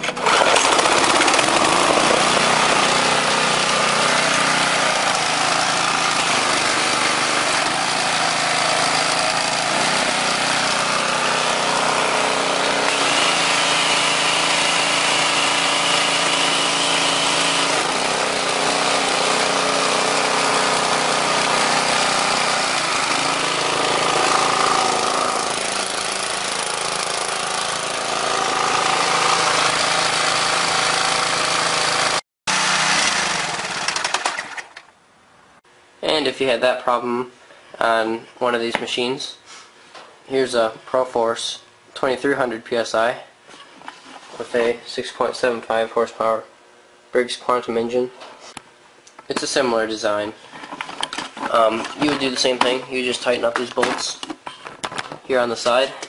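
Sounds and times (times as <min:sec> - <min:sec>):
engine pull-started: 0:00.0 - 0:07.1, 0:32.5 - 0:34.9
engine running: 0:00.0 - 0:34.8
engine knocking on mounting: 0:00.4 - 0:03.1.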